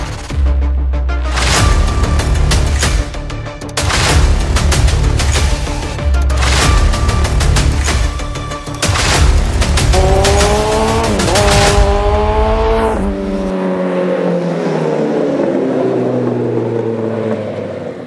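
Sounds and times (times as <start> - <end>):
vehicle engine revving: 9.4 - 18.0.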